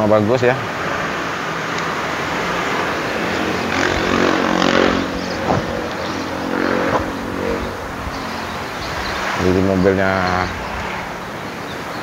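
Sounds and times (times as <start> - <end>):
street traffic: 0.0 - 12.0
motorcycle engine running: 1.3 - 10.8.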